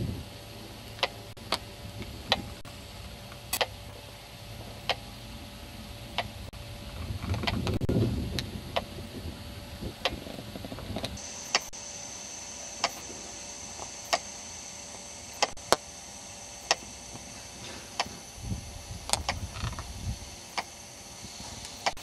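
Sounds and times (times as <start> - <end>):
wind rumble on microphone: 0.0 - 0.4, 1.6 - 2.7, 6.2 - 11.2, 18.3 - 20.4
faint high whine: 0.0 - 22.0
sharp single clicks: 12.8 - 13.0.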